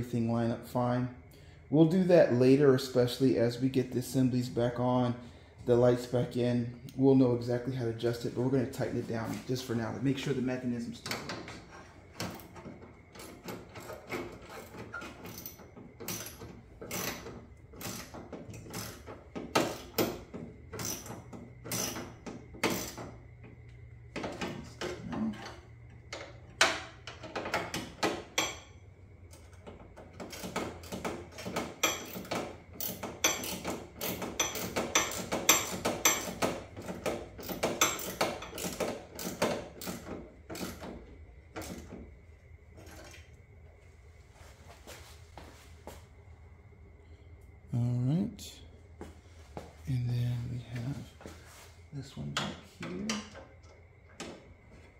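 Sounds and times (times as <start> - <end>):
ratchet wrench clicking: 31.8 - 36.4.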